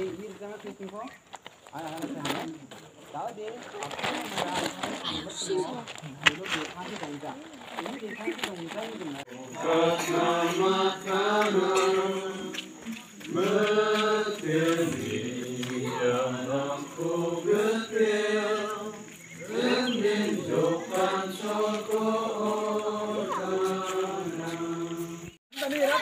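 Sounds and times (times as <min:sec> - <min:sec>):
group singing unaccompanied: 0:09.3 - 0:25.4.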